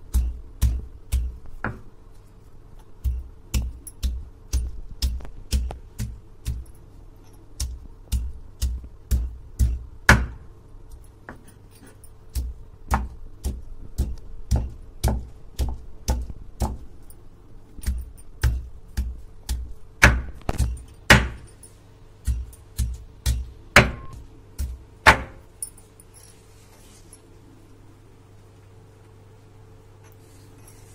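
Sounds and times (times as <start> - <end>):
stone pounding potatoes: 0.0 - 2.0, 2.8 - 6.8, 7.4 - 10.5, 11.3 - 17.0, 17.8 - 21.5, 22.2 - 25.5.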